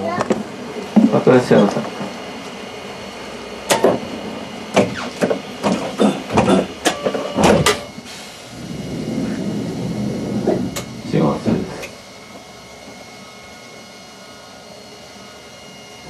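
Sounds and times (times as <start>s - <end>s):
streetcar hum: 0.0s - 16.0s.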